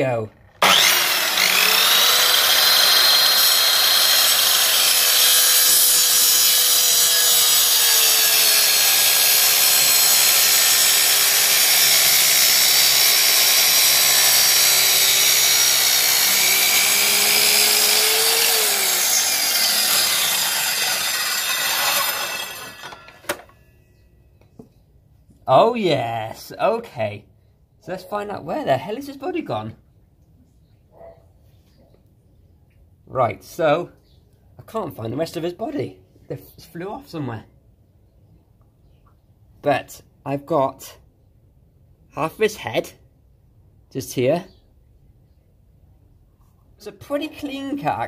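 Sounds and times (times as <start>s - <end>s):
mitre saw cutting: 0.6s - 23.5s.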